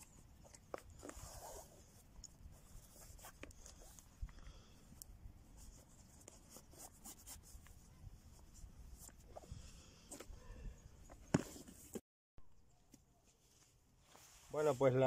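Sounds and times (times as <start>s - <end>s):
bootlaces rubbing through eyelets: 0.0s - 4.4s.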